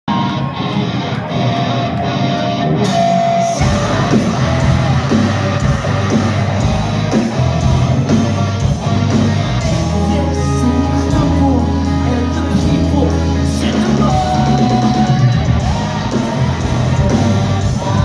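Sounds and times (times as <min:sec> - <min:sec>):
rock band playing live: 0:00.1 - 0:18.0.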